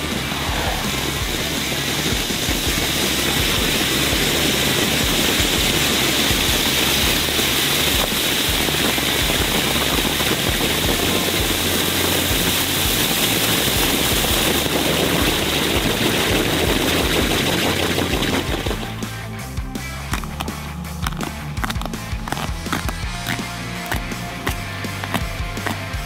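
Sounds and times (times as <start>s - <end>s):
firework fountains hissing: 0.0s - 19.2s.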